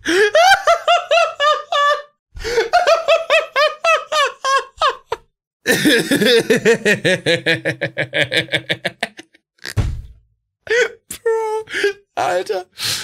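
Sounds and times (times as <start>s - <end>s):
man laughing hard: 0.0s - 9.4s
short low thump: 9.7s - 10.2s.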